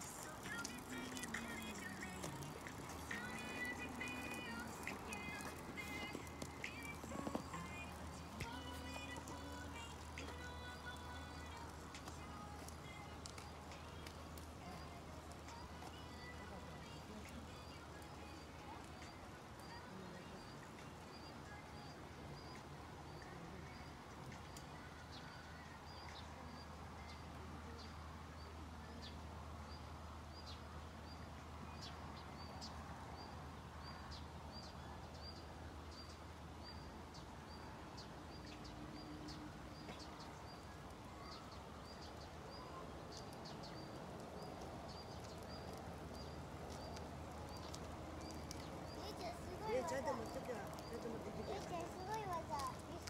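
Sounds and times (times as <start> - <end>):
faint clicks: 43.1 - 49.3.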